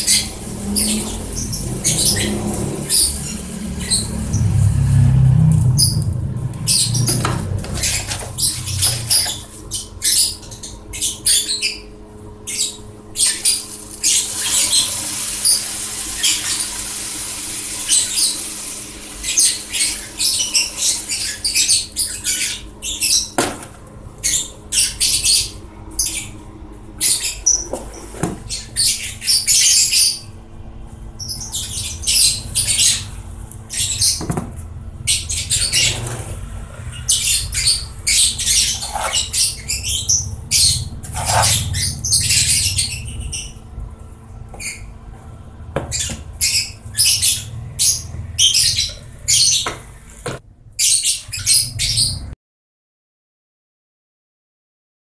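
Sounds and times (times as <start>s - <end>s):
electric fan humming: 0.0s - 50.7s
quick high chirps and squeaks: 37.0s - 43.6s.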